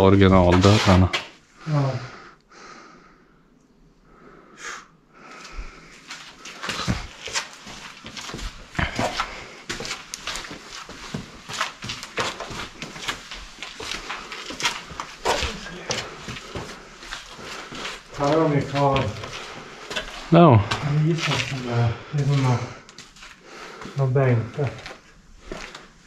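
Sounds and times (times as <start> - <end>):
footsteps on gravel: 6.5 - 23.4.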